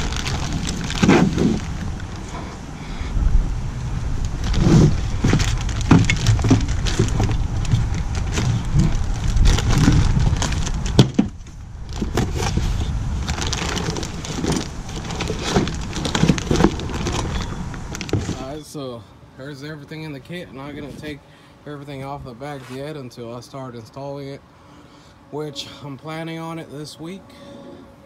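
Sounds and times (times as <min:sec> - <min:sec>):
plastic bags crinkling: 0:00.0 - 0:02.4, 0:03.8 - 0:18.6
steady low rumble: 0:00.0 - 0:22.5.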